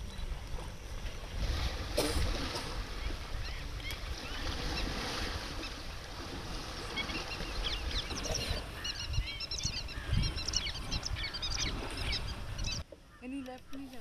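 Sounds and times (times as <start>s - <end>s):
water sloshing and splashing: 0.0s - 9.0s, 10.4s - 12.9s
wind rumble on microphone: 0.0s - 12.8s.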